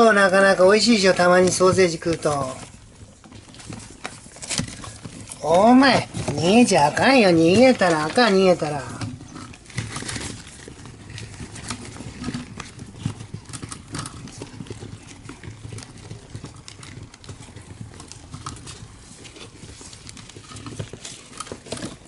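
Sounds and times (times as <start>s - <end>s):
paper rustling: 0.0s - 22.0s.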